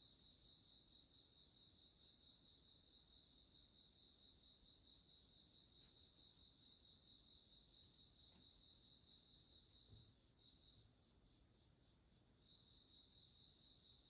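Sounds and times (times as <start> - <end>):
crickets chirping: 0.0 - 14.0
soft low thump: 9.8 - 10.2.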